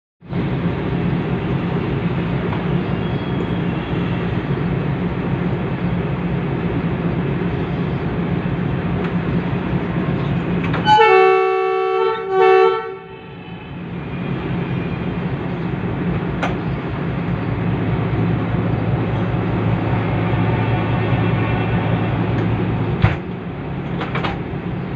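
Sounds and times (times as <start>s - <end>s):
diesel locomotive engine running: 0.2s - 24.9s
locomotive horn blasts: 10.8s - 13.8s.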